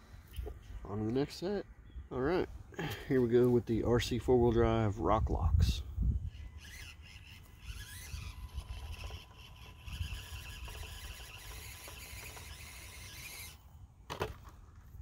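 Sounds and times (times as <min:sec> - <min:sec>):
small electric motor whining: 0:06.0 - 0:14.3.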